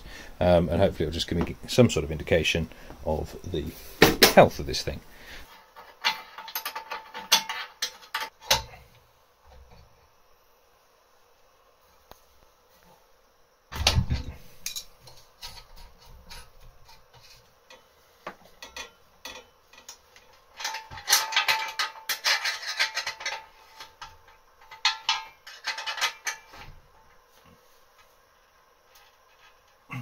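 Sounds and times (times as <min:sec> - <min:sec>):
metal tools clinking on steel tank: 0:18.6 - 0:26.6.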